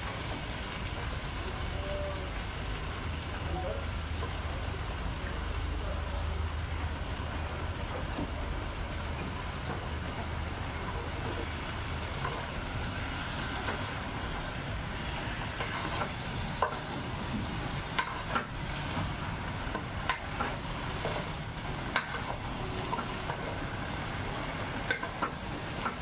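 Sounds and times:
food sizzling in pot: 10.5s - 26.0s.

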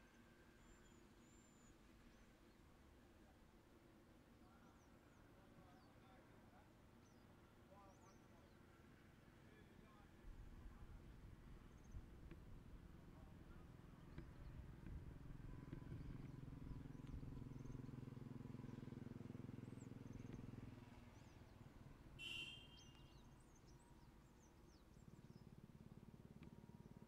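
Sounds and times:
sharp bird call: 22.2s - 23.2s
faint bird chirps: 22.2s - 25.6s.

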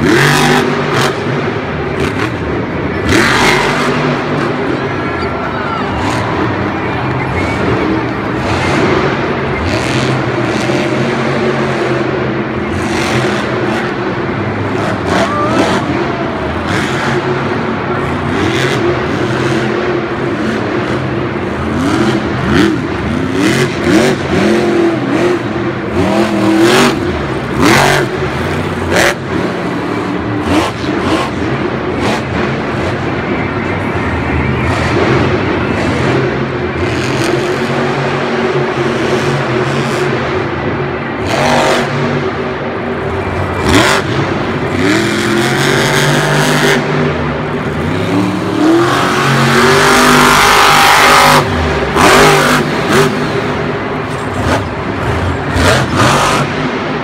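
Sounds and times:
truck engine revving hard: 0.0s - 57.0s.

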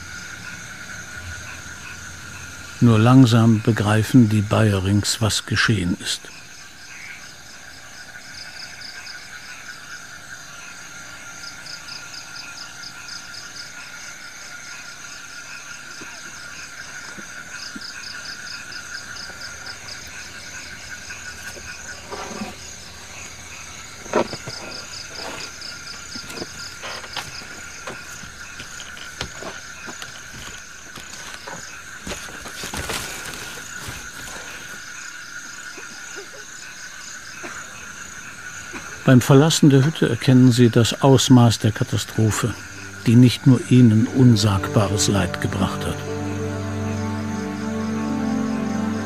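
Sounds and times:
frogs and insects chirring: 0.0s - 49.0s
rustling: 24.0s - 34.9s.

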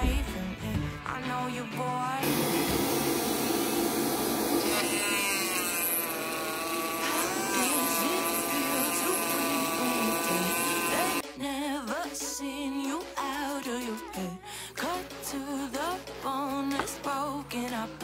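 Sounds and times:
rotary tool cutting wood: 2.2s - 11.2s.

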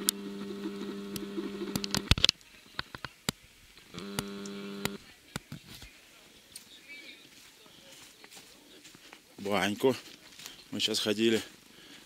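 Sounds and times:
camcorder zoom motor humming: 0.0s - 2.1s, 3.8s - 5.0s
sharp clicks: 1.1s - 5.0s.

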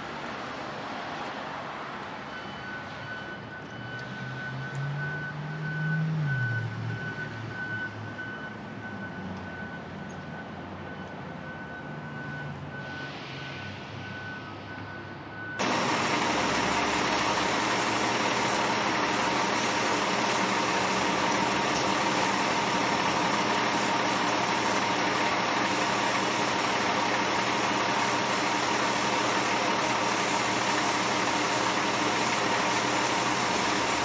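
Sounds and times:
vehicle engine running: 15.6s - 34.0s
water spraying from a hose: 15.6s - 34.0s.

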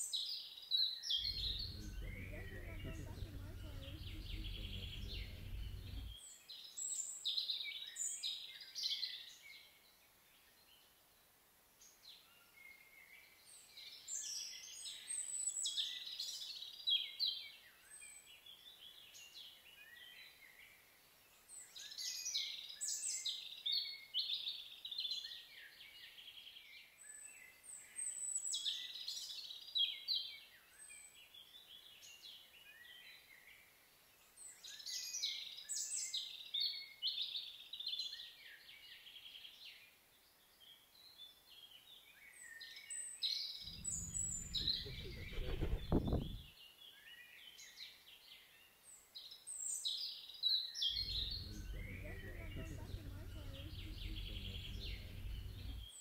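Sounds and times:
low rumble: 1.2s - 6.2s, 43.7s - 46.5s, 51.0s - 56.0s
songbird twittering: 43.7s - 46.5s, 50.9s - 56.0s.

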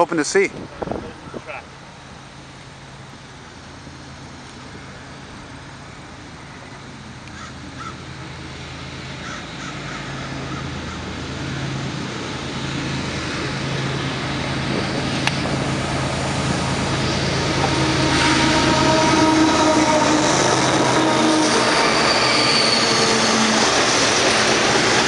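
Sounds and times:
locomotive engine drone: 0.0s - 25.0s.

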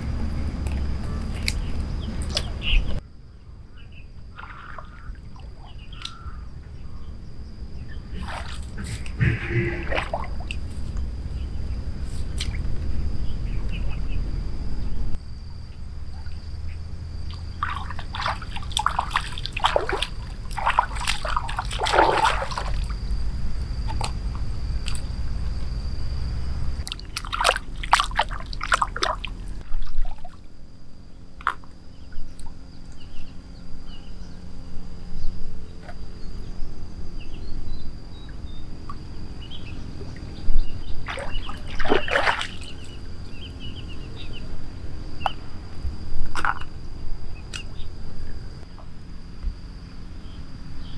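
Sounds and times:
muddy water sloshing: 0.0s - 3.0s, 4.3s - 6.8s, 7.7s - 13.9s, 15.7s - 33.0s, 38.2s - 46.8s
splashing and dripping: 4.3s - 6.2s, 8.0s - 11.1s, 12.2s - 12.7s, 17.2s - 25.4s, 26.8s - 30.5s, 40.0s - 43.0s.

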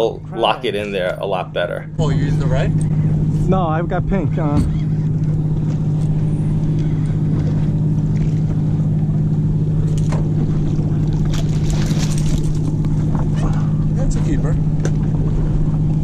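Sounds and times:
boat engine hum: 0.0s - 16.0s
fish splashing: 4.7s - 14.0s.

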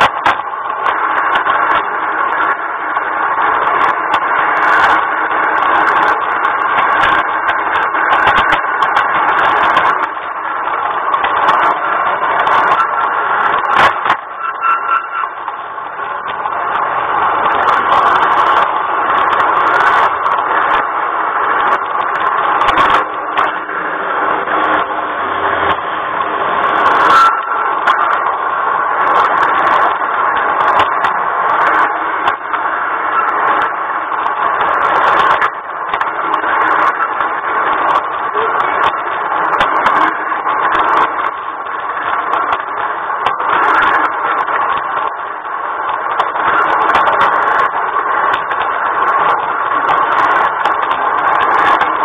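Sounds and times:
model train running on track: 0.0s - 52.0s
scattered clicks: 0.0s - 52.0s
wheel squeal: 11.6s - 15.6s, 26.5s - 28.2s, 33.0s - 33.6s.

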